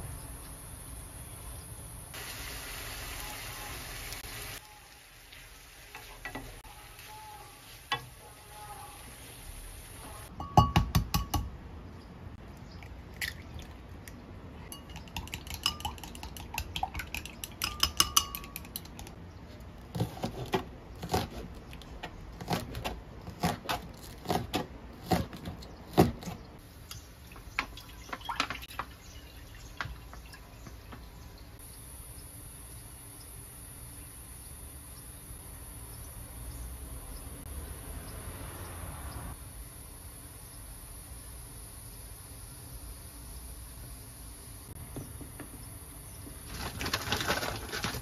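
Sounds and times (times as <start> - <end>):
utensils clinking against cookware: 14.6 - 19.1.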